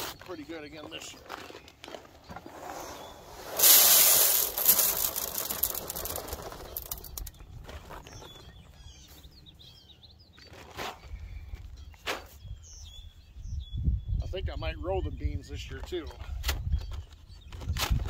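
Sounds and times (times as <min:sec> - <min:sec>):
birds chirping faintly: 0:00.0 - 0:18.0
seed pouring into plastic hopper: 0:03.5 - 0:07.3.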